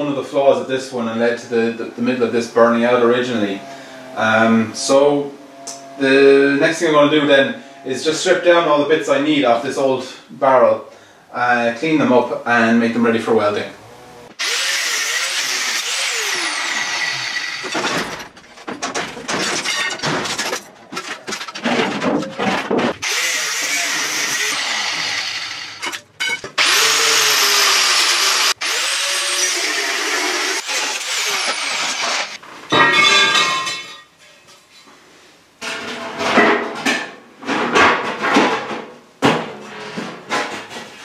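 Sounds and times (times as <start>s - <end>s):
angle grinder cutting steel: 14.3s - 18.1s, 23.0s - 32.4s
sheet steel clattering: 17.6s - 23.0s.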